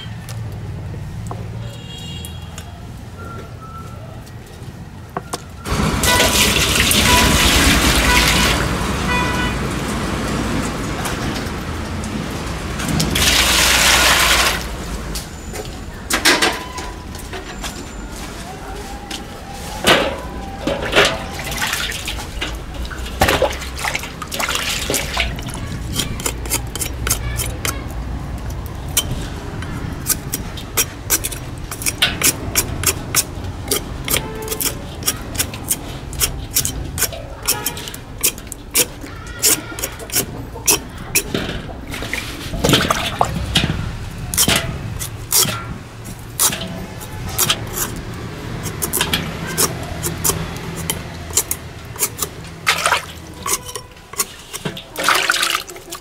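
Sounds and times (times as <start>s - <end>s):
water splashing in basin: 5.7s - 9.0s, 13.0s - 14.8s, 20.8s - 29.0s, 40.8s - 45.6s, 46.2s - 56.0s
metal scraper rasping pumpkin rind: 24.6s - 56.0s.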